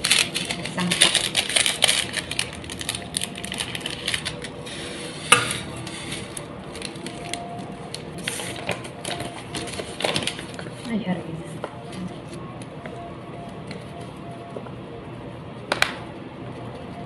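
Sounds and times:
paper bags rustling: 0.0s - 11.1s.

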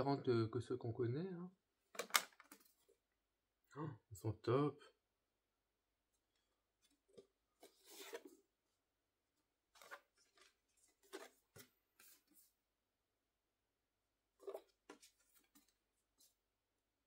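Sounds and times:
photo cards rustling and sliding: 6.7s - 8.5s, 9.7s - 12.6s.

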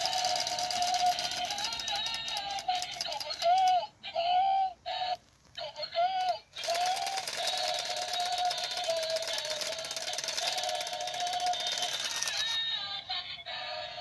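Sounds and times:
toy chainsaw buzzing: 0.0s - 3.8s, 6.2s - 12.7s.

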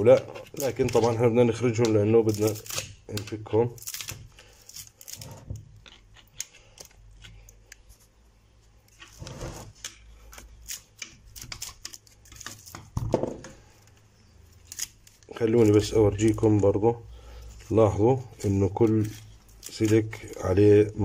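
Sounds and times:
wires clicking and rustling: 0.0s - 21.0s
louder scrapes: 9.2s - 9.7s.

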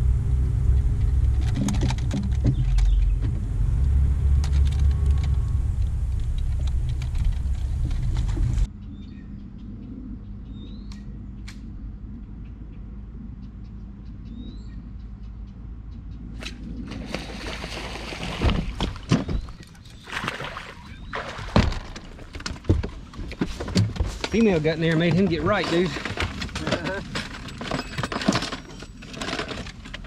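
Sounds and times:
low steady hum: 0.0s - 30.0s
knocks and thumps: 1.1s - 3.5s, 21.3s - 28.6s
bird chirps: 8.7s - 11.2s, 12.4s - 16.3s.

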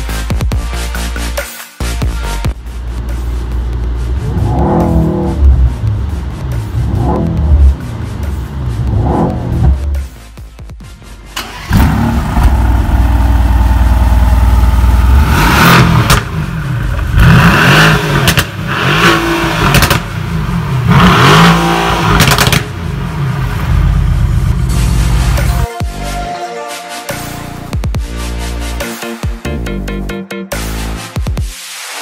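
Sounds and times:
car engine idling and revving: 0.0s - 25.7s
exhaust cracks: 2.8s - 10.2s, 11.3s - 25.5s.

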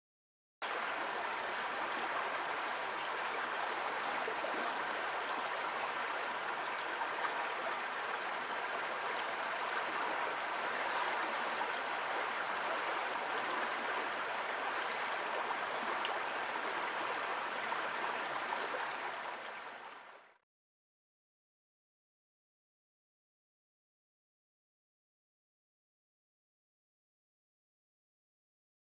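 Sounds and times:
stream water flowing: 0.6s - 20.4s.

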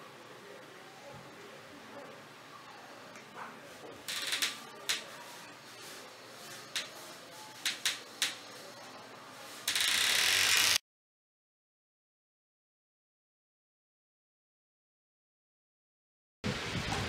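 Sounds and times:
loud static-like hiss: 3.6s - 10.8s, 16.5s - 17.0s
sharp clicks: 7.6s - 8.4s.

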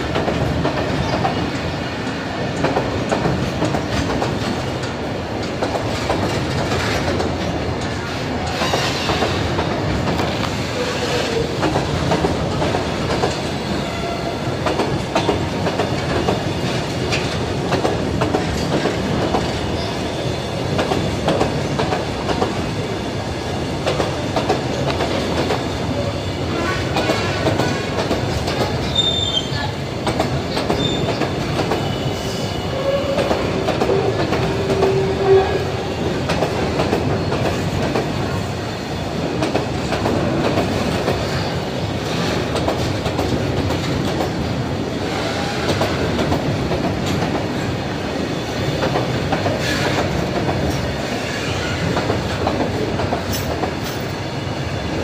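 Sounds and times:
freight train rolling past: 0.0s - 55.0s
high wheel squeals: 28.9s - 29.6s.

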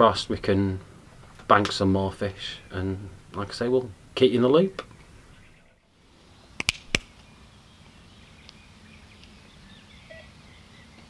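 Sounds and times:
bird chirps: 4.9s - 11.0s
sharp clicks: 6.6s - 7.2s.

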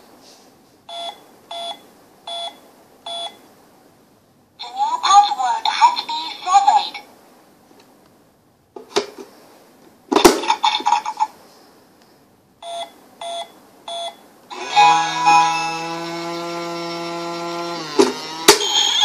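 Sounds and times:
short keypad beeps: 0.9s - 3.4s, 12.6s - 14.2s, 18.6s - 19.0s
long steady electronic chord: 14.5s - 16.0s
short electronic ringing: 18.6s - 19.0s.

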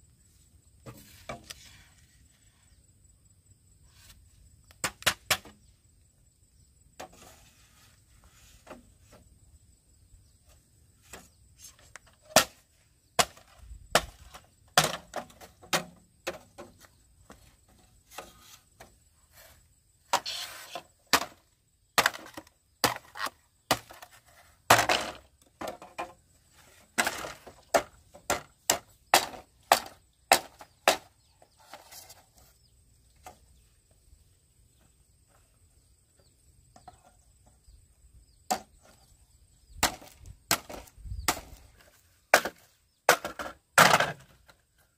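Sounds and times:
machete chopping bamboo: 13.2s - 16.4s, 22.0s - 24.1s, 27.0s - 31.1s, 39.8s - 41.6s, 42.3s - 44.2s.

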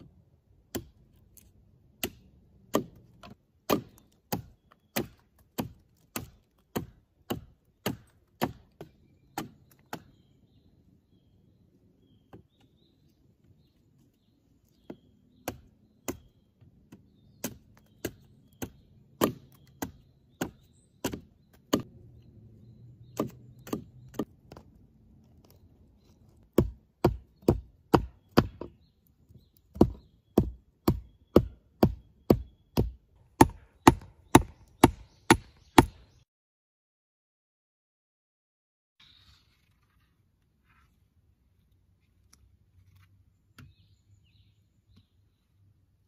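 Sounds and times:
blade chopping wood: 0.7s - 10.2s, 14.7s - 21.9s, 23.1s - 24.8s, 26.3s - 28.8s, 29.7s - 36.2s.

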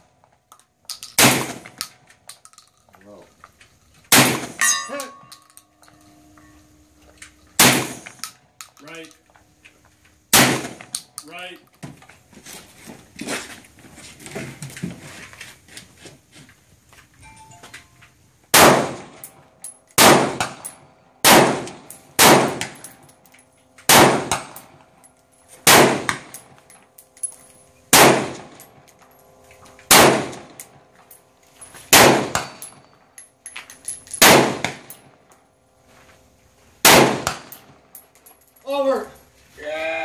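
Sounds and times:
gunshots: 1.2s - 1.8s, 4.1s - 4.6s, 7.6s - 8.2s, 10.3s - 10.9s, 18.5s - 19.2s, 20.0s - 20.6s, 21.2s - 22.8s, 23.9s - 24.6s, 25.6s - 26.3s, 27.9s - 28.6s, 29.9s - 30.5s, 31.9s - 32.6s, 34.2s - 34.9s, 36.8s - 37.6s
steel targets ringing: 4.4s - 8.1s.

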